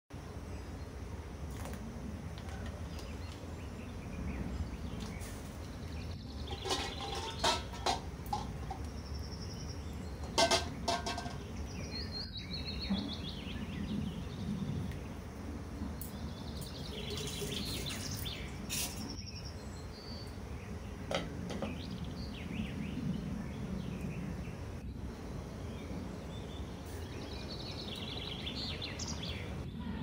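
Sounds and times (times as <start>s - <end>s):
birds chirping: 0.2s - 30.0s
cookware clicks and knocks: 6.5s - 8.8s, 10.3s - 11.4s.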